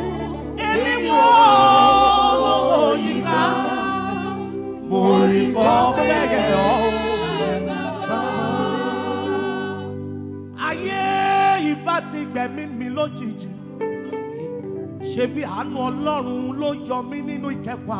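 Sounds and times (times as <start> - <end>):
vocal group singing a cappella: 0.0 - 13.5.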